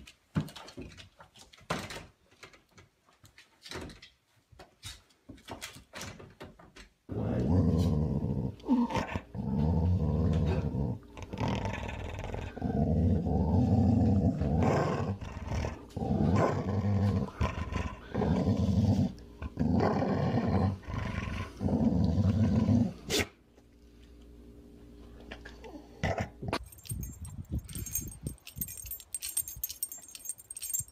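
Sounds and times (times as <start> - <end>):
dog growling and snarling: 7.1 - 23.3, 25.9 - 26.6.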